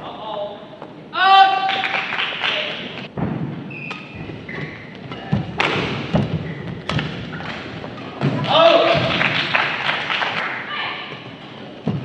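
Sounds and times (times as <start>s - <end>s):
racket hitting shuttlecock: 3.2s - 9.1s.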